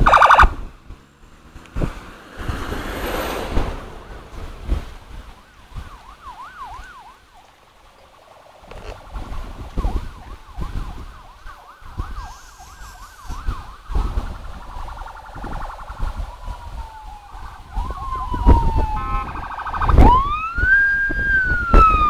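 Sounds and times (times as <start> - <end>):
long falling siren tone: 0.0 - 22.0
vehicle siren yelping: 0.0 - 22.0
wind rumbling on microphone: 0.0 - 22.0.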